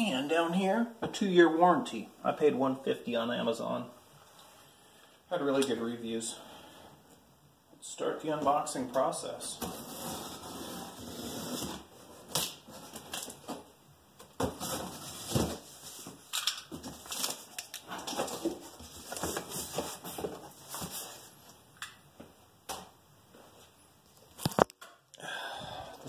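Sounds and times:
packaging rustling and crinkling: 14.5 - 21.3.

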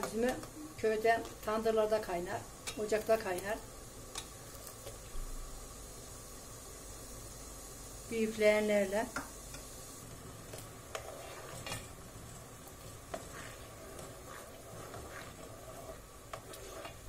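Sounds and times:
faint bubbling hiss: 0.0 - 17.0
wooden spoon stirring syrup: 10.5 - 17.0.

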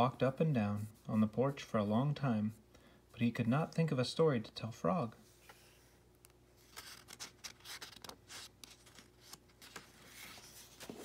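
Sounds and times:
book page rustling and scraping: 6.6 - 11.0.

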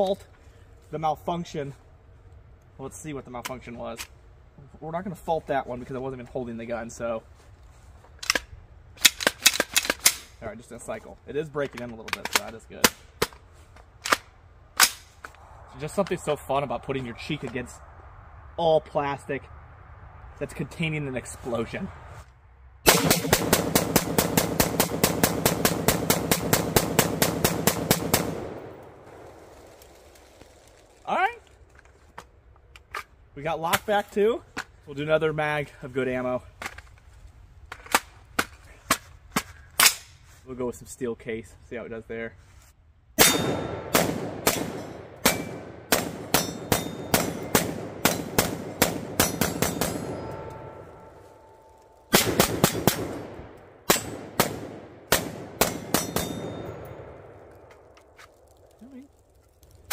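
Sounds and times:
rifle firing rapid shots: 22.9 - 28.8, 43.2 - 50.4, 52.1 - 56.6.

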